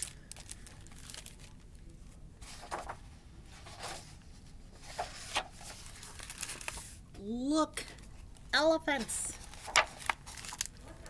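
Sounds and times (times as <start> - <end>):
low room hum: 0.0 - 11.0
book pages rustling: 2.4 - 7.0, 9.0 - 11.0.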